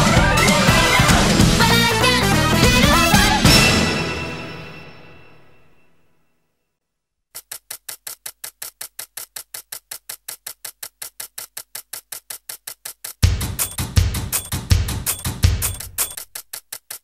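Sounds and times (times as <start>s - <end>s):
band with drums: 0.0s - 4.4s, 13.2s - 16.2s
electronic ticking: 7.8s - 17.0s.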